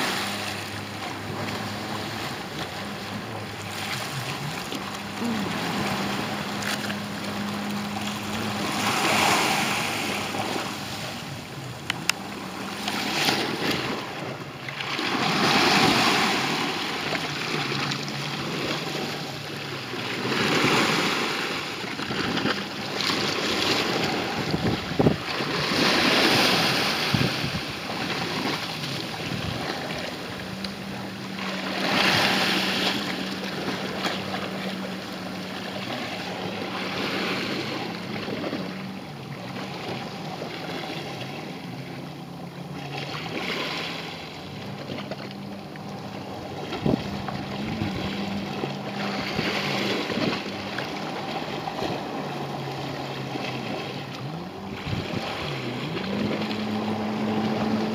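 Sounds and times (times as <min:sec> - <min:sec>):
jet ski engine drone: 0:00.0 - 0:57.9
small waves washing ashore: 0:00.0 - 0:57.9
wind on microphone: 0:22.0 - 0:34.9, 0:46.4 - 0:57.9.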